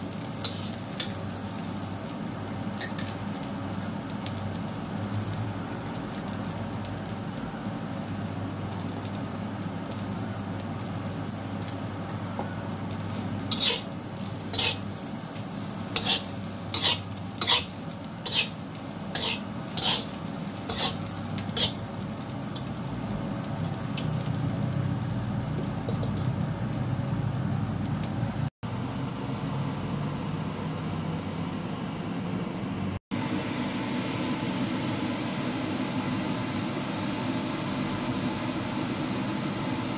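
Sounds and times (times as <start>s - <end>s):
food sizzling in a wok: 0.0s - 39.9s
metal spatula scraping wok: 0.4s - 1.2s, 13.0s - 21.9s.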